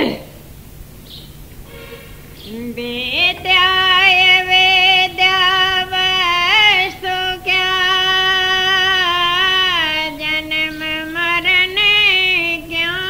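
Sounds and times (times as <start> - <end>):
high-pitched voice singing a hymn: 2.4 - 13.0.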